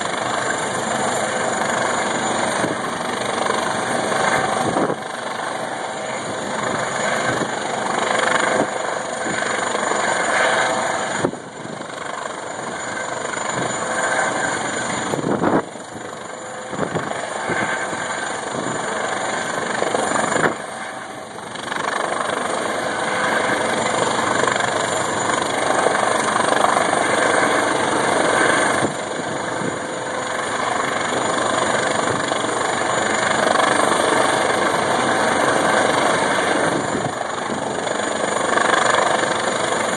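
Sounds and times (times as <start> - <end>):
helicopter rotor and engine: 0.0 - 39.9.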